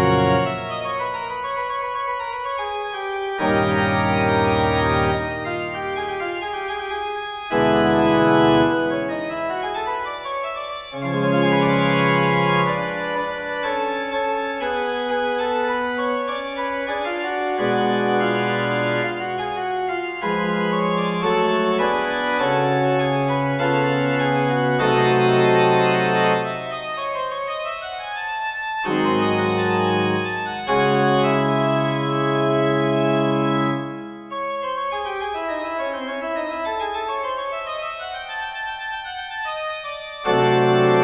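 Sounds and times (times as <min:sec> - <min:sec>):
slow organ chords: 0:03.3 - 0:06.7.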